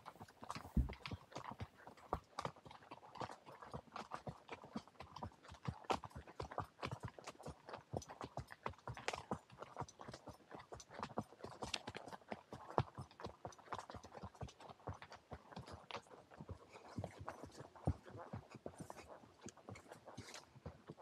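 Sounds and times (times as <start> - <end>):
horse hooves clopping on trail: 0.0 - 21.0.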